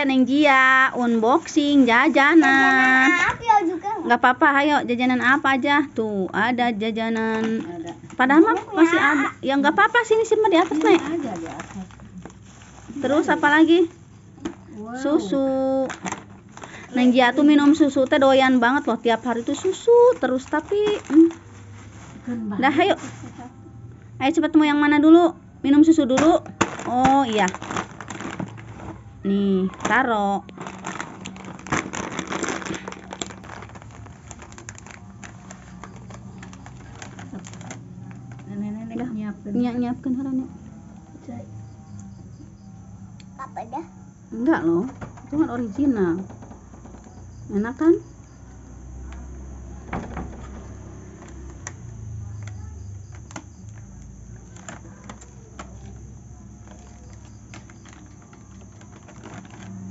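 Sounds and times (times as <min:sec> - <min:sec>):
low steady hum: 0:00.0 - 0:59.9
plastic snack packets crinkling: 0:06.7 - 0:22.9, 0:25.8 - 0:39.2, 0:46.2 - 0:47.5, 0:48.2 - 0:59.9.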